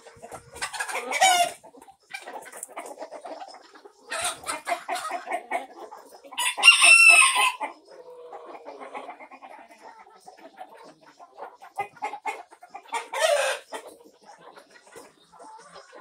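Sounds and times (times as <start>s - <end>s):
chickens clucking: 0.0s - 16.0s
rooster crowing: 6.4s - 7.6s.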